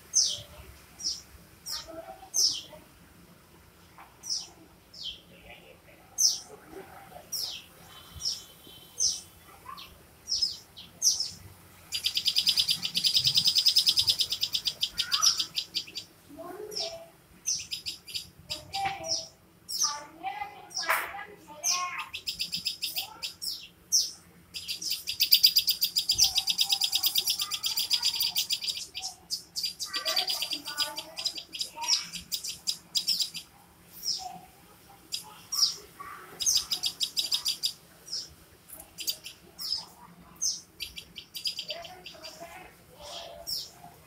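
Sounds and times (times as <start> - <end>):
songbirds chirping: 0.0 - 44.0.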